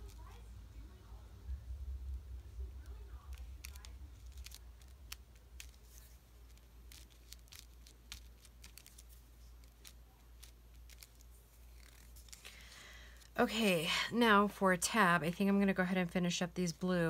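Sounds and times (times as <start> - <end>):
steady low hum: 0.0 - 17.0
paper rustling and ticking: 2.8 - 13.4.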